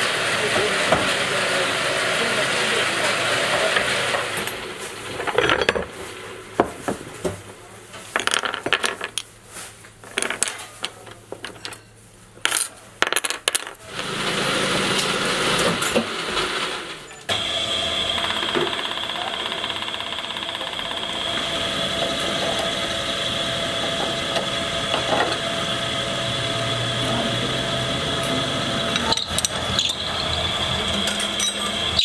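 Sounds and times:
workshop hum: 0:00.0 - 0:32.0
metal parts clinking: 0:10.0 - 0:13.8, 0:29.0 - 0:32.0
machine hum: 0:13.8 - 0:32.0.

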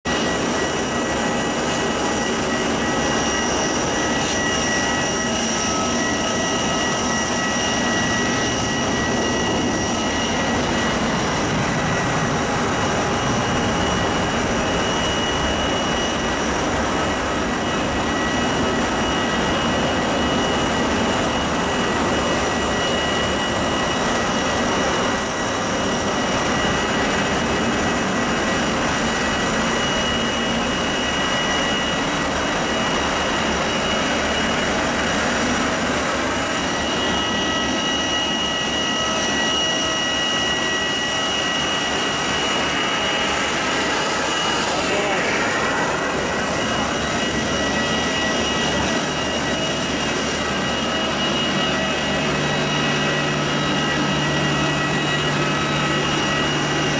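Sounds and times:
continuous roar: 0:00.1 - 0:56.9
high whining turbines: 0:00.1 - 0:56.9.

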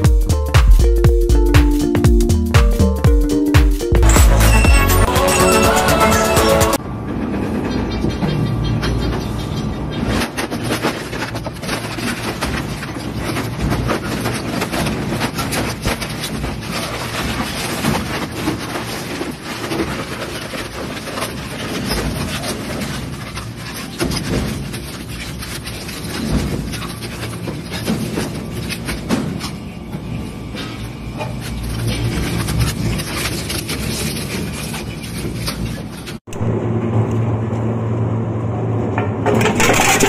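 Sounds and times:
shredder machine running: 0:36.3 - 0:40.0
metallic clanks and rattling: 0:38.9 - 0:40.0.

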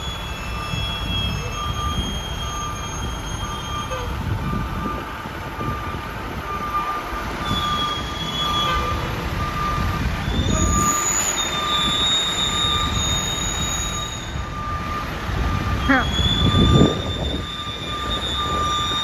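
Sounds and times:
backup alarm beeping: 0:00.0 - 0:19.0
diesel engine rumble: 0:00.0 - 0:19.0
high brake squeals: 0:00.0 - 0:19.0.

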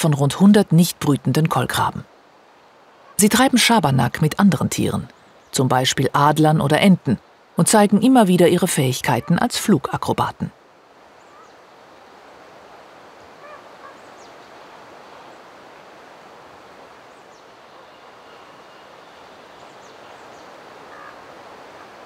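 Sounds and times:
raven calls: 0:11.2 - 0:11.6, 0:13.4 - 0:14.3, 0:20.8 - 0:21.4.

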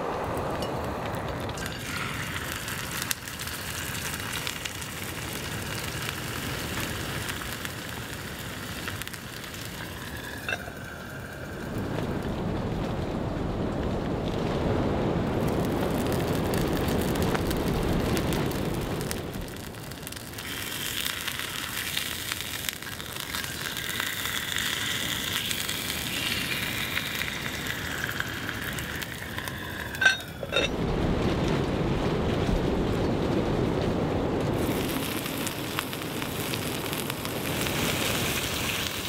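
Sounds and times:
meat sizzling in skillet: 0:01.6 - 0:11.8, 0:15.4 - 0:30.7, 0:34.6 - 0:39.0.

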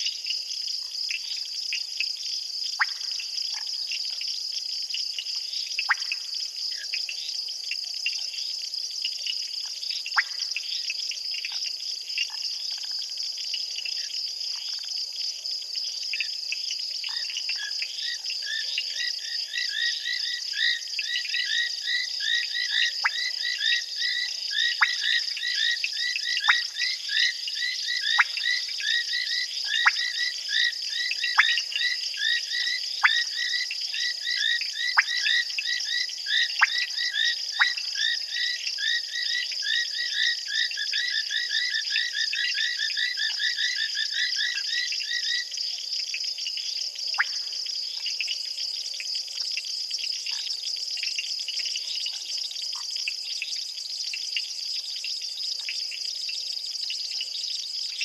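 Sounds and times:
frogs calling rapidly: 0:17.1 - 0:45.6.

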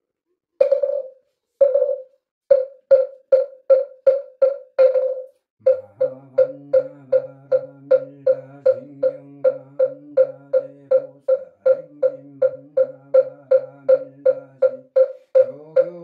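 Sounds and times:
wooden fish drum knocking: 0:00.6 - 0:16.0
low monotone chant: 0:05.6 - 0:14.7.

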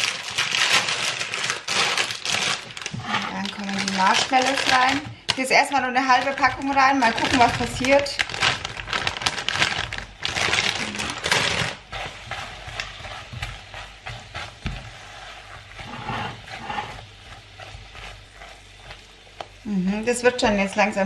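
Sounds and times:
plastic bag crinkling: 0:00.0 - 0:13.4
spatula stirring: 0:00.0 - 0:21.0
fat sizzling quietly: 0:10.8 - 0:21.0.

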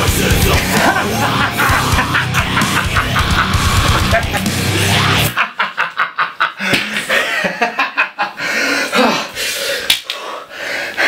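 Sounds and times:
man gasping and grunting: 0:08.4 - 0:11.0.

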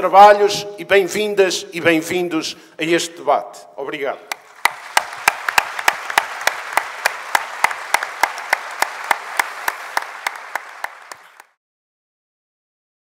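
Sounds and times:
audience applauding: 0:04.3 - 0:11.6.

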